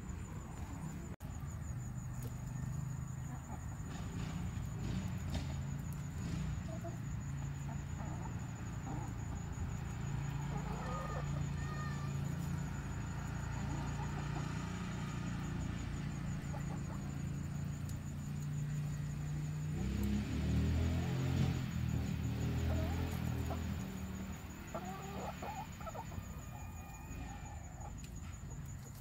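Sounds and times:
hens clucking: 2.1s - 18.8s, 21.9s - 28.2s.

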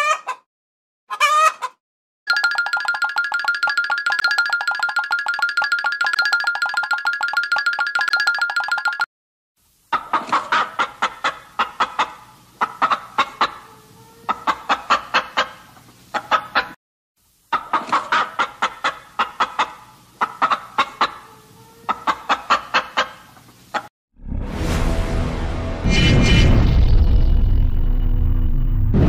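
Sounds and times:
chicken clucking: 0.0s - 0.4s, 1.1s - 1.8s, 9.9s - 16.8s, 17.5s - 23.9s.

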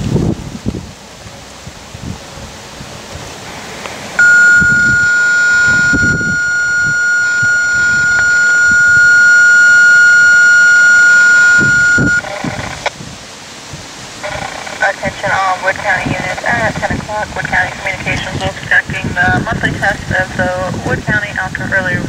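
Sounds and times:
wind on microphone: 0.0s - 22.0s
steady electronic alert tone: 4.2s - 12.2s.

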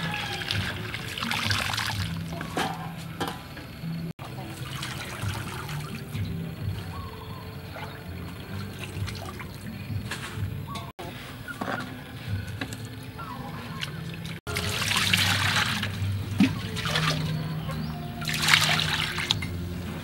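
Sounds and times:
water pouring into a steel bowl: 0.0s - 2.4s, 4.2s - 6.7s, 14.2s - 17.6s, 18.2s - 19.6s.

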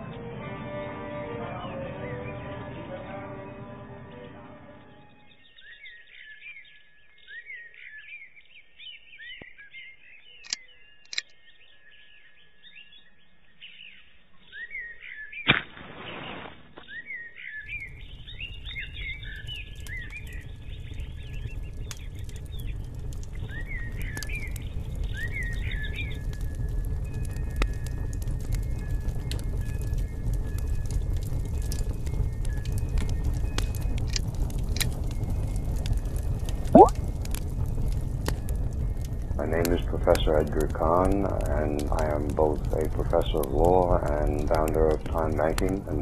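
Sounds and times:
small birds chirping: 4.1s - 46.0s
low rumble: 17.7s - 46.0s.

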